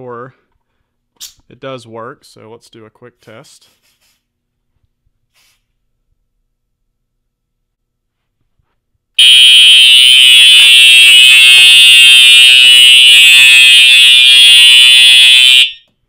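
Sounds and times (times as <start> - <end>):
fire alarm horn steady tone: 9.2 - 15.9.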